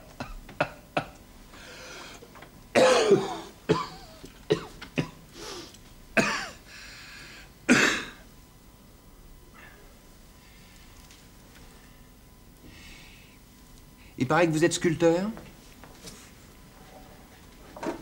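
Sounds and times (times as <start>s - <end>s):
person coughing: 0.2s - 1.2s, 2.8s - 5.2s, 6.2s - 6.6s, 7.7s - 8.2s
throat clearing: 0.2s - 1.2s.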